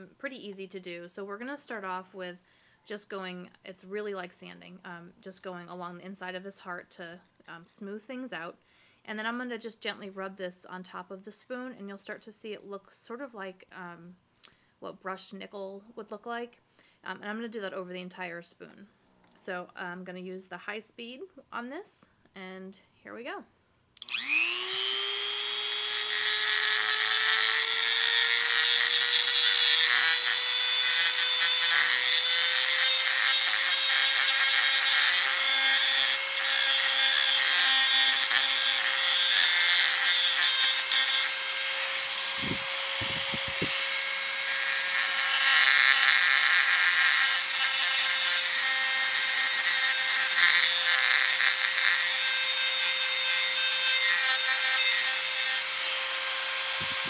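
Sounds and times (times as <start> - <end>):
rotary tool motor whine: 24.0 - 57.0
stone grinding metal: 25.6 - 48.8.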